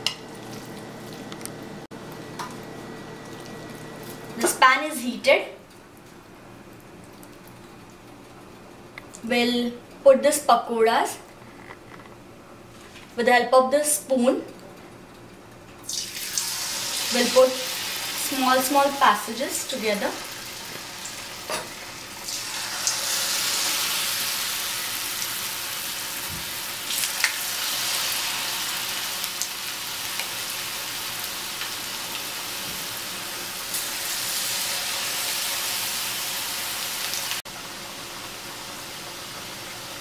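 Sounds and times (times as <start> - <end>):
hot oil sizzling and bubbling: 15.8 - 40.0.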